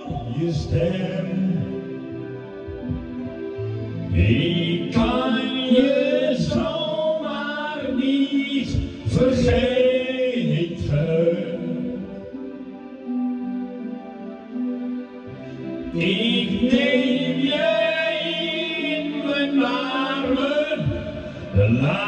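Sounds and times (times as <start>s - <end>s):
man singing into microphone: 0.0s - 3.0s, 4.1s - 12.5s, 15.8s - 22.0s
recorded backing track: 0.0s - 22.0s.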